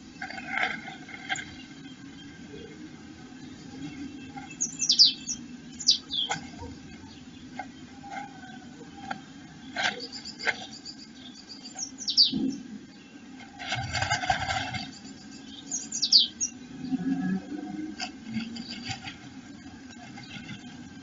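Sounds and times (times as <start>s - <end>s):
bird chirps: 3.4s - 13.2s, 14.8s - 17.2s
bird rustling in nest: 13.4s - 15.0s, 17.9s - 21.0s.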